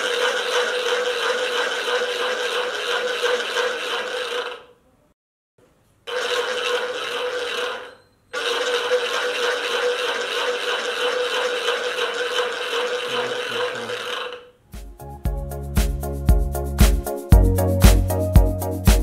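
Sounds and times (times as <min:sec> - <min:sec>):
rasping noisemaker buzz: 0:06.1 - 0:14.6
music with heavy beat: 0:14.8 - 0:19.0.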